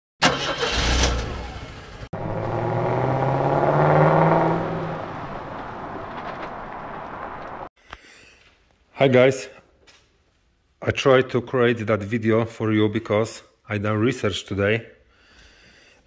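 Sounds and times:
car engine revving: 0.2 - 7.7.

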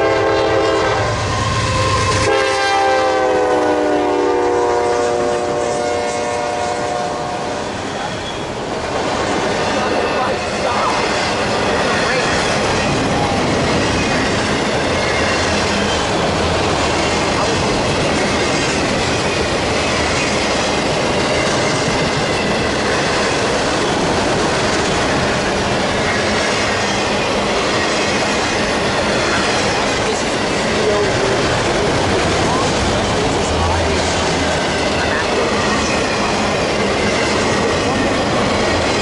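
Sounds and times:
freight cars rumbling on rails: 0.0 - 39.0
high wheel squeal: 7.6 - 8.7.

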